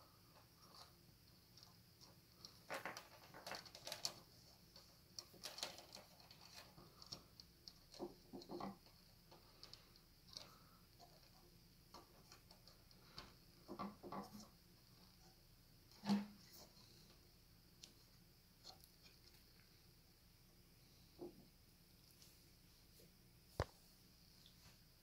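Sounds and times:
faint clicks and light scraping: 0.3s - 19.8s.

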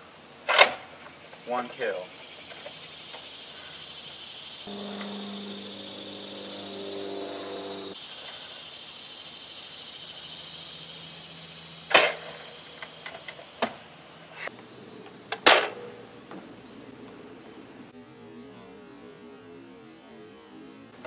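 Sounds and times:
steady high hiss: 0.0s - 14.6s.

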